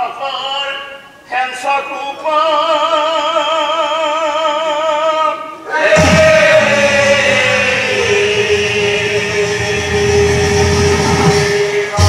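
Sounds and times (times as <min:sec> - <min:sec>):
man singing with vibrato: 0:00.0 - 0:12.0
group voices singing: 0:05.7 - 0:12.0
low drum beat: 0:05.9 - 0:12.0.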